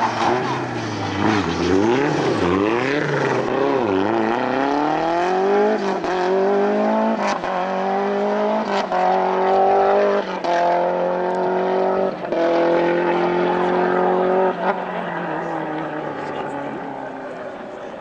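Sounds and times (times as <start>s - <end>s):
rally car engine revving: 0.0s - 18.0s.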